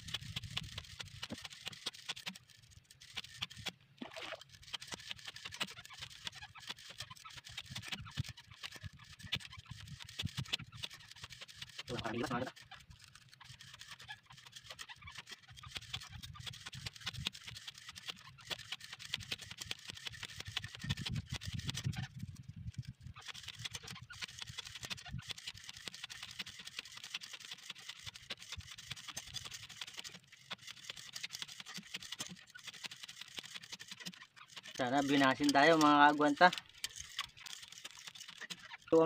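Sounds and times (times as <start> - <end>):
fishing line ticking off spool: 0.0 - 39.0
wind: 0.0 - 39.0.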